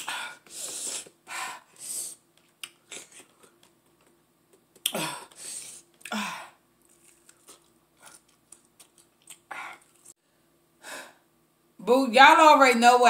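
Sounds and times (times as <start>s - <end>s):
biting and chewing: 6.8s - 10.1s.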